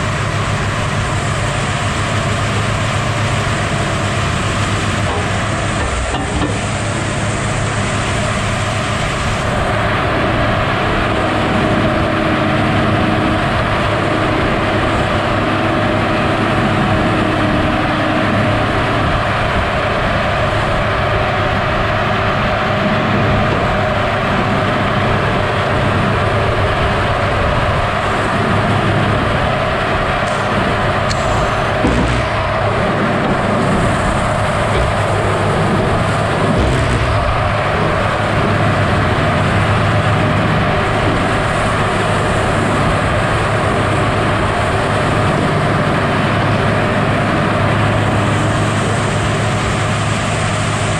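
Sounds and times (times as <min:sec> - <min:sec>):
droning tone: 0:00.0 - 0:20.9, 0:28.0 - 0:46.0
diesel engine running: 0:00.0 - 0:50.9
circular saw blade cutting logs: 0:03.3 - 0:07.8, 0:30.3 - 0:38.6.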